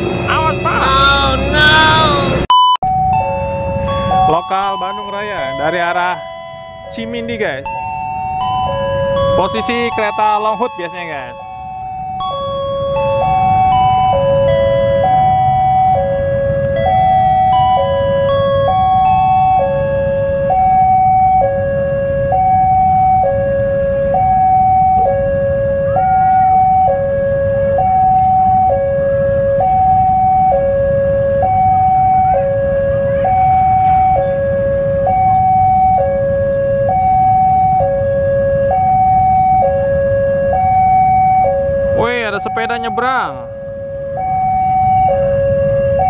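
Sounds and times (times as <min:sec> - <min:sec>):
steady low rumble: 0:00.0 - 0:04.4
two-tone level crossing alarm: 0:00.0 - 0:46.0.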